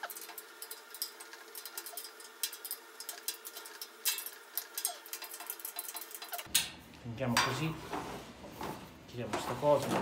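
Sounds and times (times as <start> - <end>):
metal cart parts clicking and tapping: 0.0 - 6.8.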